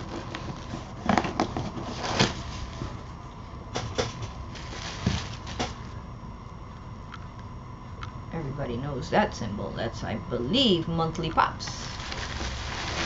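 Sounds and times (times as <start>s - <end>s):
scrapes and rustles of cardboard: 0.0s - 3.0s, 4.6s - 5.6s, 11.9s - 13.0s.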